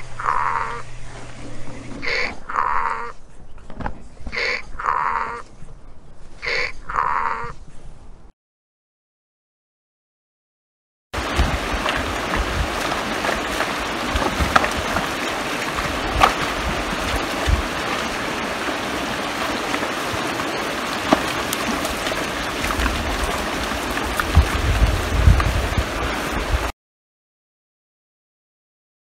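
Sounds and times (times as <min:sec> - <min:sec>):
low thumps: 0:11.2 - 0:26.7
steady rushing noise: 0:11.2 - 0:26.7.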